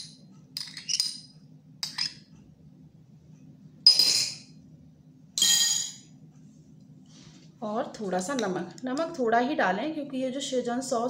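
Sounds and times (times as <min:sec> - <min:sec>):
faint low hum: 0:00.0 - 0:11.0
spoon clinking on crockery: 0:03.9 - 0:04.5.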